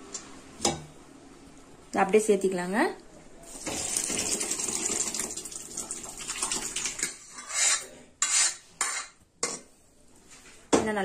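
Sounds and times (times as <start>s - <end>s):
thick liquid pouring into pot: 3.5s - 7.2s
steel ladle scraping metal: 7.0s - 9.6s.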